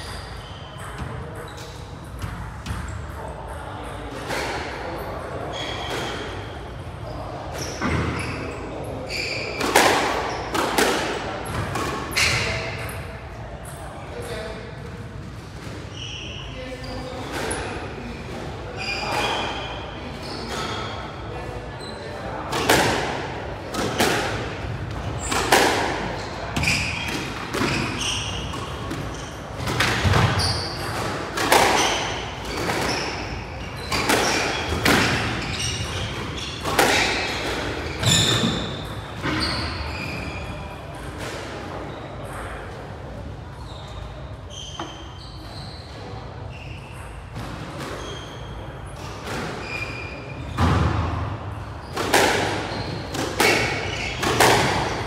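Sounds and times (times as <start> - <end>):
shoes squeaking on wooden floor: 26.2 - 40.6.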